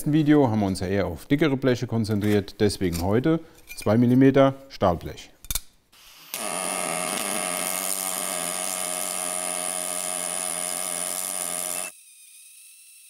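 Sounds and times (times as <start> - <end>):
welding arc buzzing: 6.0 - 12.0.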